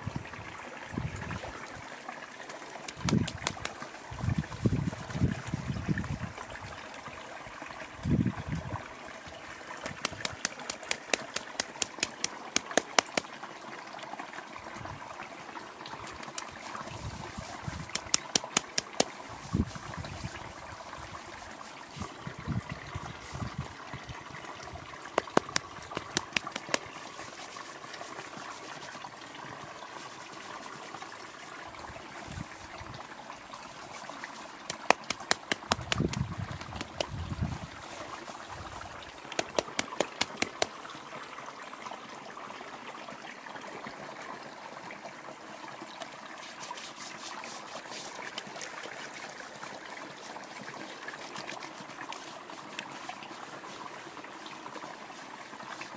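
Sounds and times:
squelching clicks of wet hair: 0:02.8 - 0:04.0, 0:09.8 - 0:13.4, 0:16.0 - 0:22.2, 0:25.2 - 0:29.0, 0:33.7 - 0:37.2, 0:39.1 - 0:40.8, 0:51.2 - 0:53.9.

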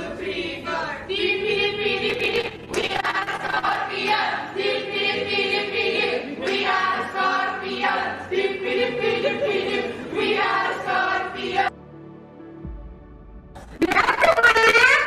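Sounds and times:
group singing in unison: 0:00.0 - 0:11.8.

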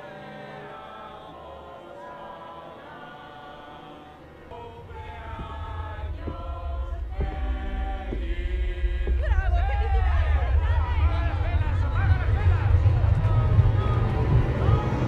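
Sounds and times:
film score with choir-like voices: 0:00.0 - 0:15.0
low rumble: 0:04.5 - 0:15.0.

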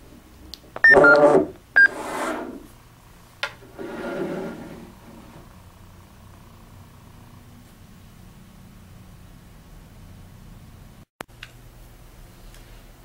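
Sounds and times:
short electronic beeps: 0:00.8 - 0:01.2.

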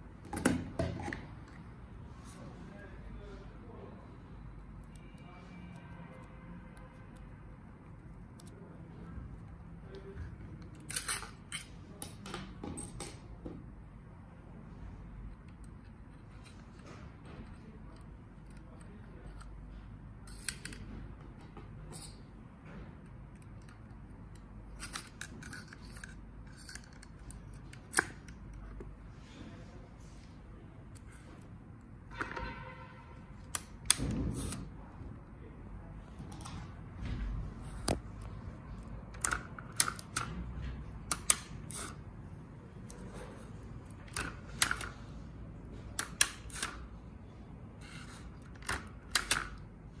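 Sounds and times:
metallic clicks and scrapes: 0:10.6 - 0:12.0, 0:15.3 - 0:20.9, 0:23.0 - 0:28.8, 0:41.0 - 0:42.1, 0:45.9 - 0:46.9.

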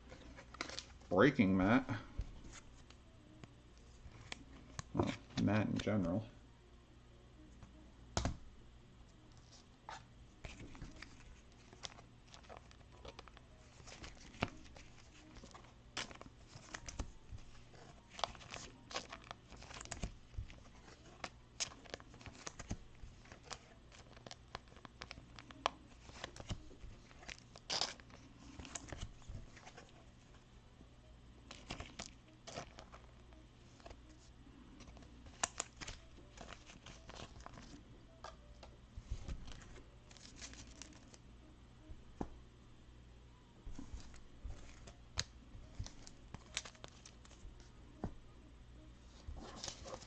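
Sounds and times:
plastic sleeves crinkling: 0:00.0 - 0:01.2, 0:09.4 - 0:30.3, 0:31.5 - 0:38.3, 0:39.0 - 0:41.2, 0:43.7 - 0:47.7, 0:49.1 - 0:50.0.

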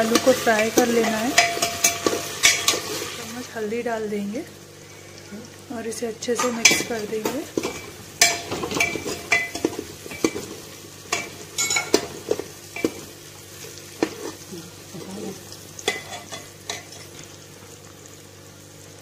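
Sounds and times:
oil sizzling: 0:00.0 - 0:19.0
metal spoon clinking in pot: 0:00.2 - 0:02.8, 0:07.7 - 0:10.4, 0:11.1 - 0:12.1.

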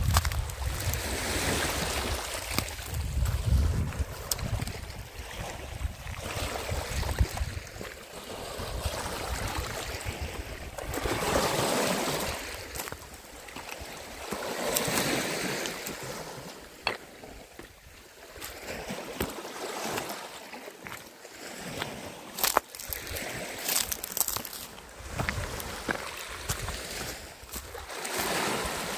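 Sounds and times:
wind rumble on microphone: 0:00.0 - 0:13.2, 0:24.9 - 0:28.9
waves lapping over stones: 0:00.0 - 0:28.9.

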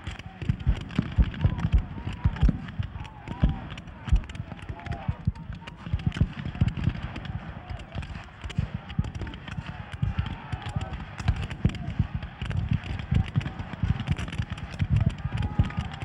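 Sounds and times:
rifle fire crackling: 0:00.0 - 0:16.0
men shouting: 0:00.3 - 0:16.0.

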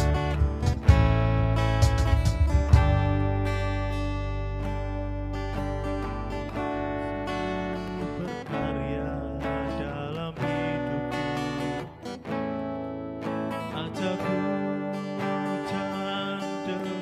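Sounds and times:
strummed acoustic guitar: 0:00.0 - 0:17.0
slow worship song: 0:05.6 - 0:17.0.

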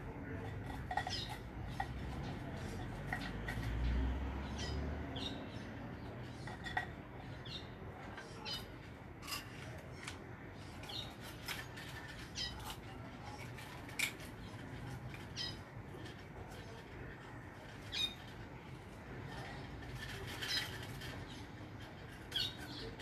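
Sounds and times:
low background hum: 0:00.0 - 0:23.0
small birds chirping: 0:00.0 - 0:23.0.

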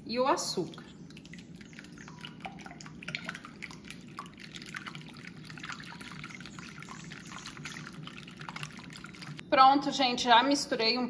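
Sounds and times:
whisk beating eggs in glass bowl: 0:01.0 - 0:09.4.

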